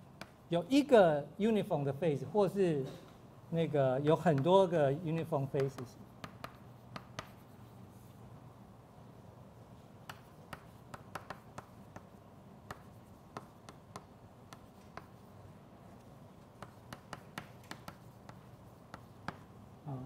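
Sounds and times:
low room hum: 0:00.0 - 0:20.0
chalk tapping on chalkboard: 0:00.2 - 0:00.4, 0:04.3 - 0:04.6, 0:05.5 - 0:07.8, 0:10.0 - 0:19.6.

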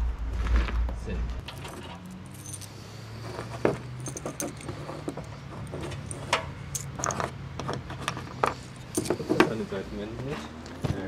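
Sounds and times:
metallic clinks of tools: 0:01.4 - 0:02.8, 0:03.8 - 0:07.2, 0:08.6 - 0:09.3.

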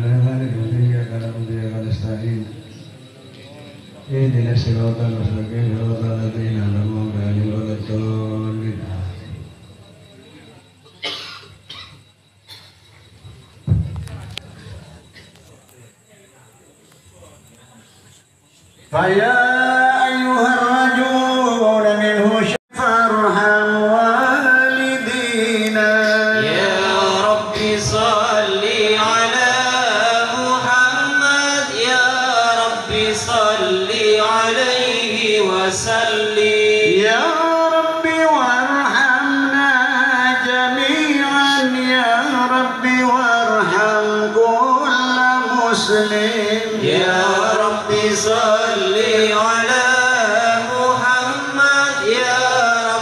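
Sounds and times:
men chanting through a pa: 0:18.8 - 0:53.0.

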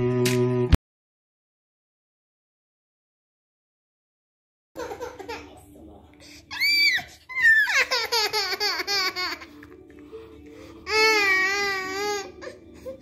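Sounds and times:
faint background music: 0:04.8 - 0:13.0
children crying: 0:06.5 - 0:09.6, 0:10.8 - 0:13.0.

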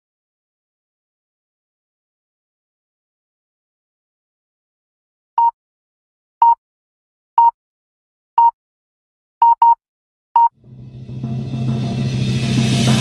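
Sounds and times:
short electronic beeps: 0:09.4 - 0:09.8
music: 0:10.6 - 0:13.0.

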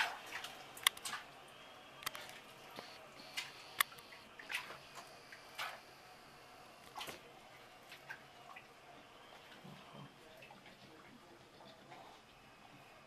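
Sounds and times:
sharp splashes and clicks: 0:00.0 - 0:01.3
bathwater splashing and dripping: 0:00.0 - 0:01.5, 0:03.3 - 0:05.8.

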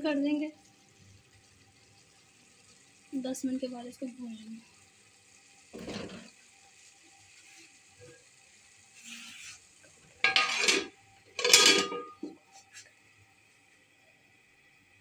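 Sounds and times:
metal lid clattering onto pan: 0:10.2 - 0:12.4.

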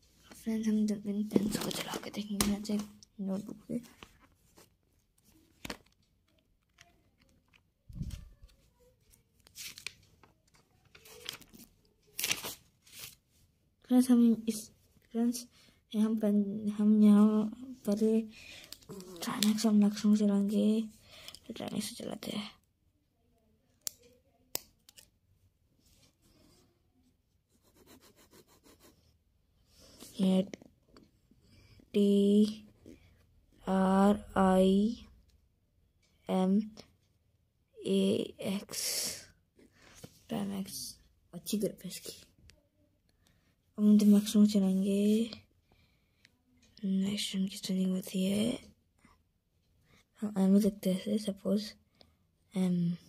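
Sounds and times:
paper rustling: 0:01.3 - 0:02.8, 0:03.4 - 0:13.3
pen scratching on paper: 0:27.5 - 0:29.2.

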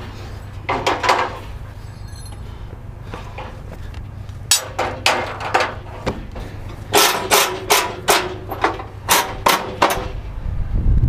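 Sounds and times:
metallic clanks on steel deck: 0:04.5 - 0:06.3, 0:06.9 - 0:10.2.

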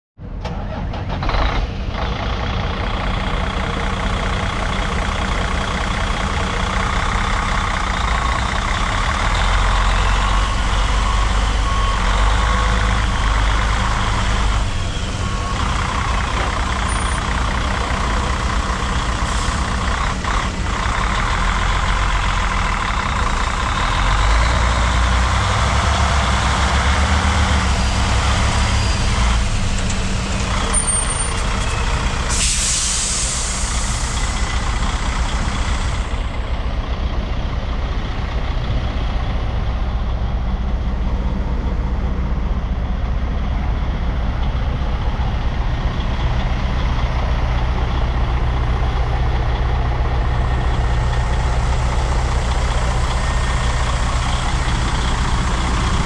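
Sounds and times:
truck diesel engine idling: 0:00.6 - 0:56.0.

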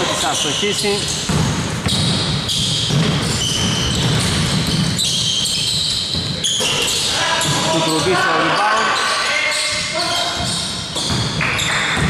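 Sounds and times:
basketball bouncing on court: 0:00.8 - 0:08.2, 0:09.7 - 0:12.0
steady crowd din: 0:05.7 - 0:12.0.

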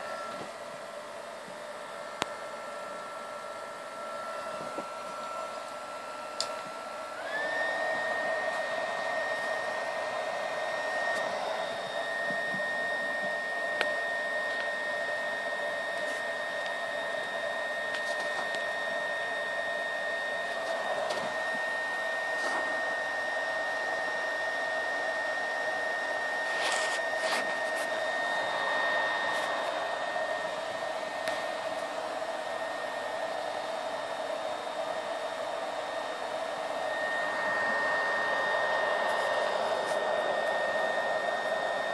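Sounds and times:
stove fan whirring: 0:00.0 - 0:41.9.

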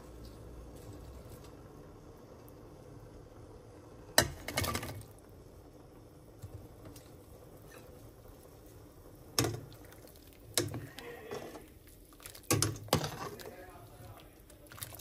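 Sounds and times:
food splashing into broth: 0:09.3 - 0:13.6.

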